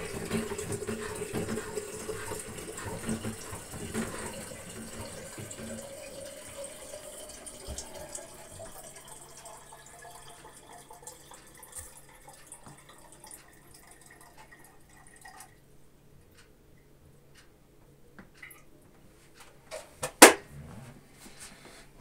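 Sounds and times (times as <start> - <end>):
faint dripping water: 0.0 - 17.5, 18.2 - 18.9.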